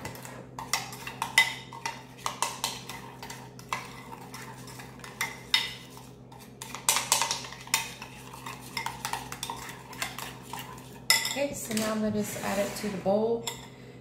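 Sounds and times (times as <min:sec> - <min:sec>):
utensil scraping a bowl: 0:00.6 - 0:13.7.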